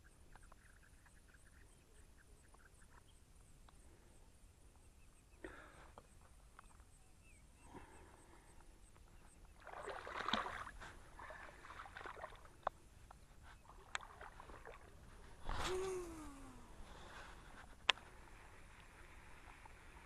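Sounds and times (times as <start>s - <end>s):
water splashing and sloshing: 9.4s - 20.0s.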